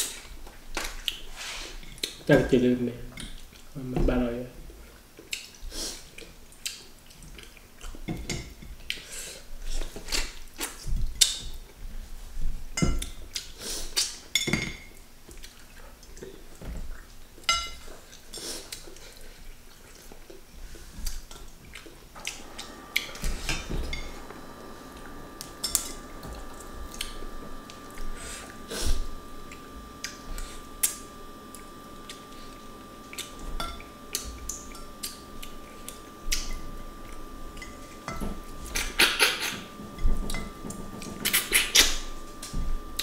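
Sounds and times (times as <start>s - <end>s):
faint high tone hum: 3.8s - 4.6s, 22.0s - 43.0s.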